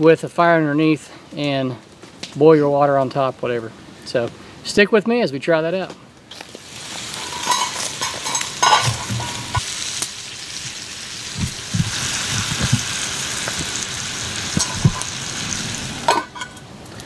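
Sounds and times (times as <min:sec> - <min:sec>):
campfire hissing and crackling: 0:00.0 - 0:04.8, 0:06.1 - 0:17.0
fire pops: 0:01.8 - 0:02.5, 0:06.3 - 0:17.0.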